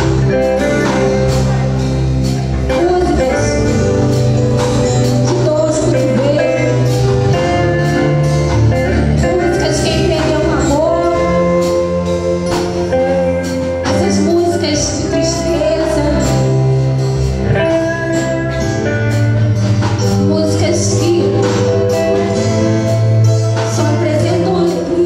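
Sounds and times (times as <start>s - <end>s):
electric guitar and band: 0.0s - 25.0s
woman singing into microphone: 2.7s - 3.8s, 5.1s - 7.1s, 9.2s - 11.9s, 12.9s - 16.6s, 20.1s - 22.6s, 23.6s - 25.0s.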